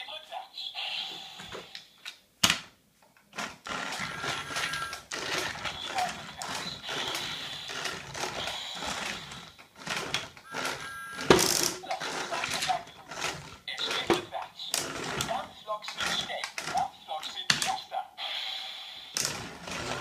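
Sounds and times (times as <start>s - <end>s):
toy train motor and wheels rattling: 3.3s - 17.8s, 18.9s - 20.0s.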